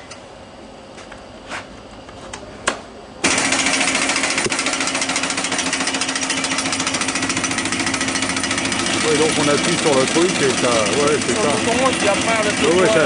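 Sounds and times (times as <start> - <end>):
cutting machine rattling: 3.2 - 13.0.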